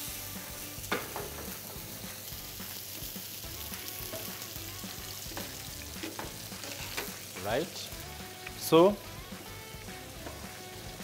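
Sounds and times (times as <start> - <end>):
steak sizzling in frying pan: 0.0 - 11.0
tongs ticking and scraping: 5.3 - 7.6.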